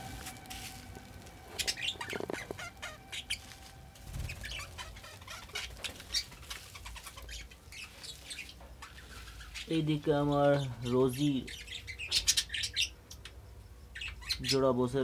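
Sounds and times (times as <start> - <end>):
wings fluttering: 0.0 - 10.0
budgerigars chirping: 1.5 - 14.8.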